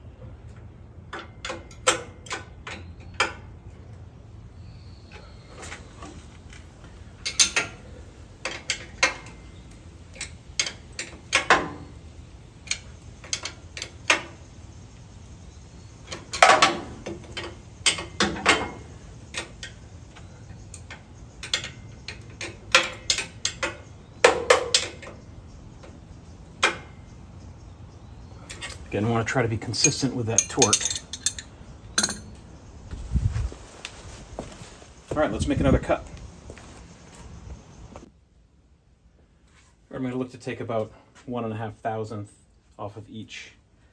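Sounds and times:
wrench clicking and clanking on metal: 0:07.2 - 0:07.8, 0:20.7 - 0:23.9, 0:29.8 - 0:32.4.

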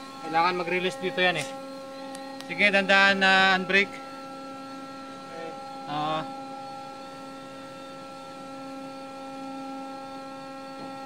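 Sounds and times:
machinery hum: 0:00.0 - 0:11.0.

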